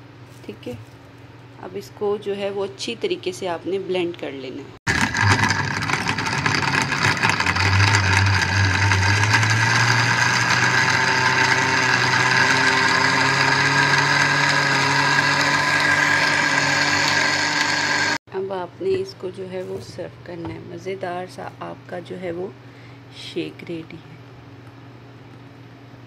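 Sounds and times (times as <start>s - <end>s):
blender running: 4.9s - 18.2s
ice being crushed: 4.9s - 18.2s.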